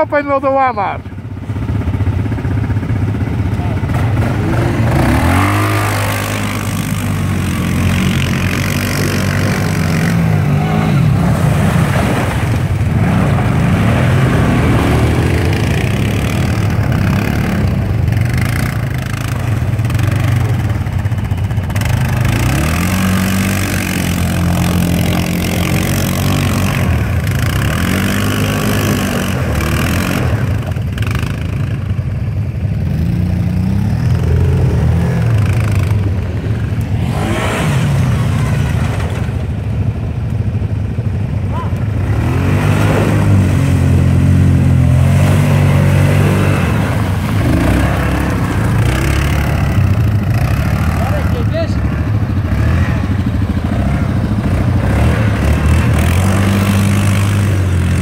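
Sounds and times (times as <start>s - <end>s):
quad engine revving: 0.0s - 40.1s, 40.9s - 58.0s
water splashing: 4.6s - 20.9s, 41.8s - 51.3s.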